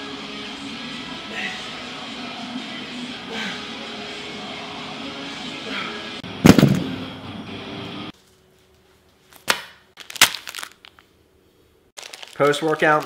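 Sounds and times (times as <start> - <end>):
background music: 0.0 - 8.1
loud heavy thud: 6.3 - 7.1.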